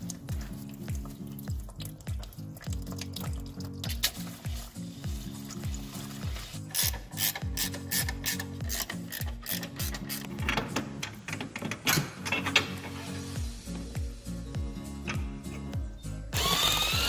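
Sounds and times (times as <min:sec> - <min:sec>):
music with deep bass beat: 0:00.0 - 0:10.7, 0:13.0 - 0:17.0
ratcheting spanner clicking: 0:06.7 - 0:12.7.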